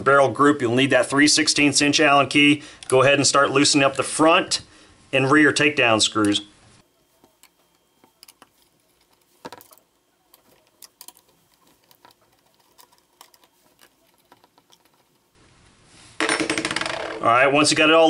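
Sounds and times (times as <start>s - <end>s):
allen key clicking in screws: 7.2s - 15.2s.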